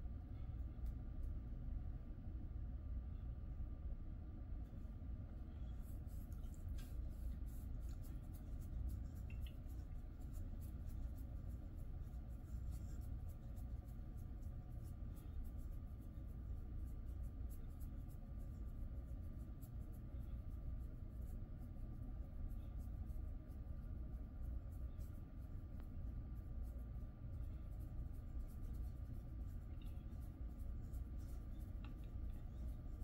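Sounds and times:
steady low hum: 0.0 - 33.0
fingers scratching dog's coat: 5.8 - 20.2, 21.0 - 33.0.

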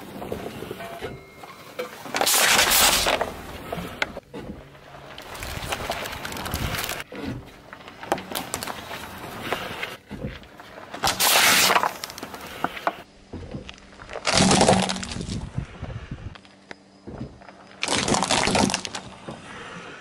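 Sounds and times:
tyre crushing things on asphalt: 1.8 - 15.5
plastic bottle crunching: 2.1 - 3.4, 5.1 - 7.1, 7.8 - 13.0, 13.7 - 15.5, 17.7 - 19.2
plastic object crunching: 2.1 - 15.6, 17.4 - 19.3.

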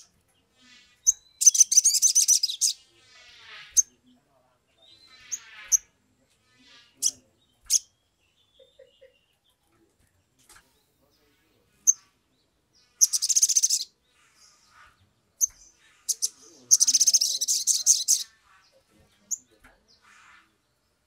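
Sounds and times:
bird calling with chips and trills: 0.0 - 4.2, 12.8 - 20.6.

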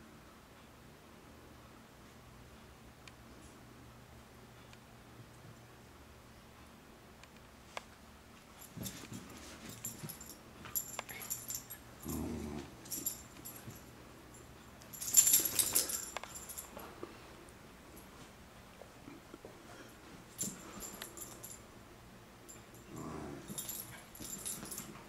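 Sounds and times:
animals scuffling on a rug: 8.4 - 11.5
puppy growling: 12.0 - 12.9, 22.9 - 23.6.

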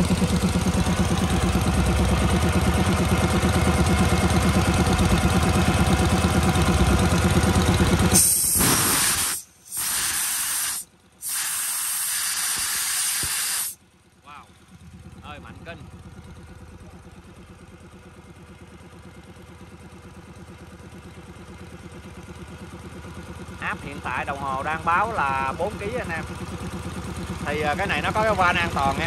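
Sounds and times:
air compressor engine running: 0.0 - 18.8, 20.8 - 29.0
compressed air hissing: 8.1 - 13.8.

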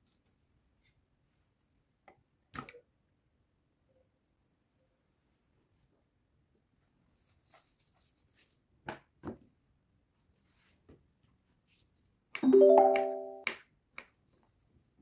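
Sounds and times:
piano-like chime: 12.4 - 13.4.

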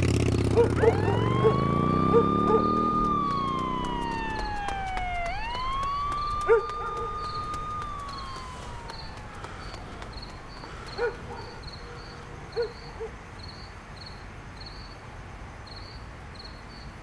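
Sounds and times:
vehicle engine revving: 0.0 - 12.4
emergency siren wailing: 0.5 - 12.8.

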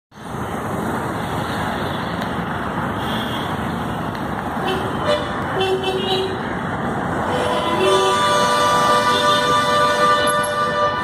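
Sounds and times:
city road traffic: 0.1 - 11.0
vehicle horn: 7.3 - 11.0.

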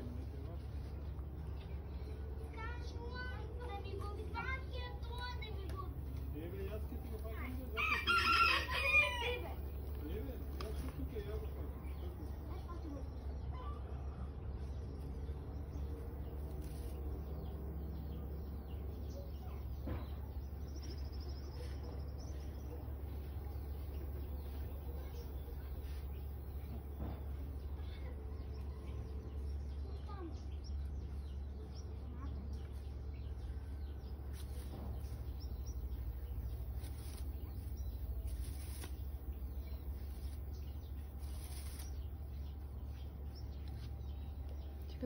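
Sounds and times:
dry hay rustling: 3.7 - 12.1, 16.0 - 17.8, 34.0 - 44.4.

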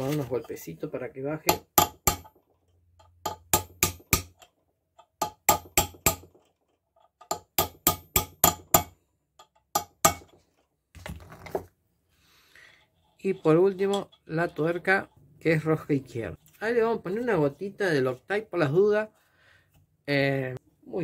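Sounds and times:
hammer tapping on metal: 1.5 - 2.4, 3.0 - 6.4, 7.2 - 10.4.

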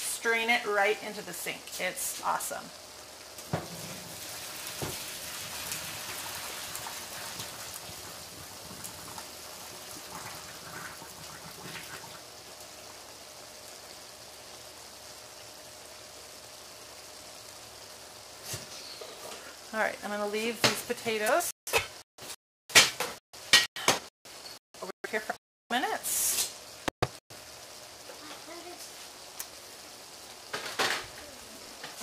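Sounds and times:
hot water pouring into sink: 3.4 - 12.9.

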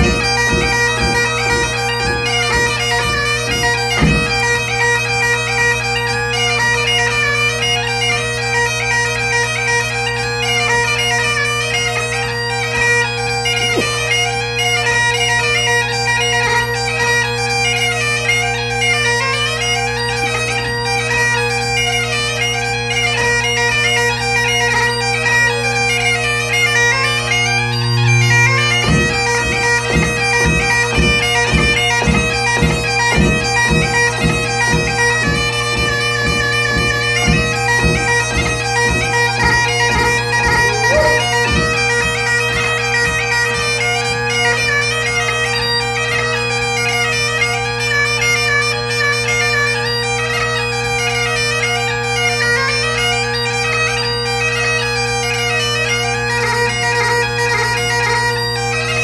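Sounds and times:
bagpipes playing a tune: 0.0 - 59.0.

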